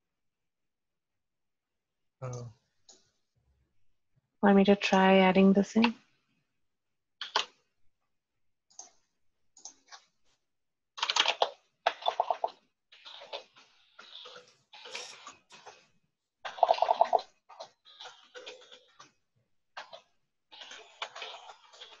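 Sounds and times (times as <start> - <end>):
keyboard typing clicks: 7.2 - 7.6.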